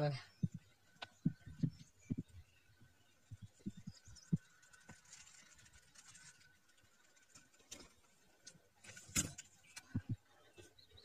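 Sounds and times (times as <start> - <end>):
rustles: 3.3 - 10.7.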